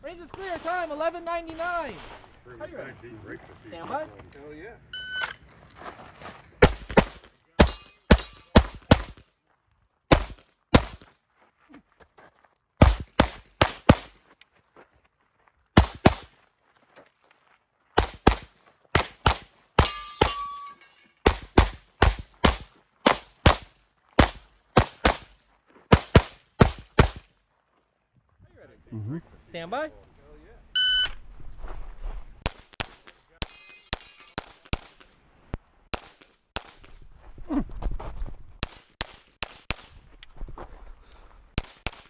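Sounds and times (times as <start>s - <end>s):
brief ringing tone: 5.0s - 5.3s, 30.8s - 31.2s
handgun shots: 6.6s - 9.2s, 10.1s - 11.0s, 12.8s - 14.1s, 15.8s - 16.3s, 18.0s - 20.5s, 21.2s - 25.3s, 25.9s - 27.2s.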